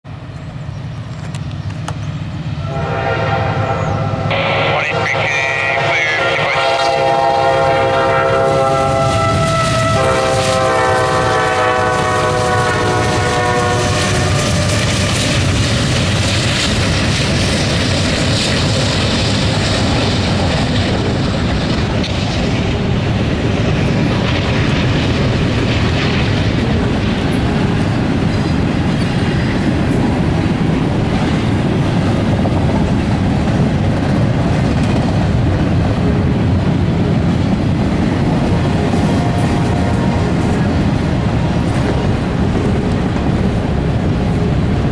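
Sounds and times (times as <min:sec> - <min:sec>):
locomotive air horn chord: 0:02.6 - 0:14.8
train wheels clattering on rails: 0:08.3 - 0:44.9.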